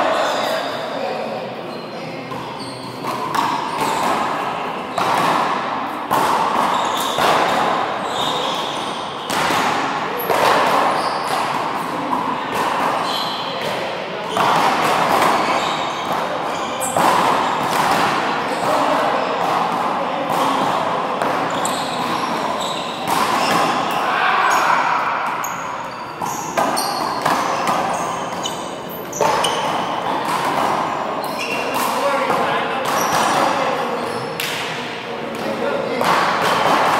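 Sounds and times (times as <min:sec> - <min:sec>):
handball smacking wall and floor: 0:02.4 - 0:13.0, 0:13.6 - 0:24.1, 0:26.2 - 0:33.8, 0:36.0 - 0:36.9.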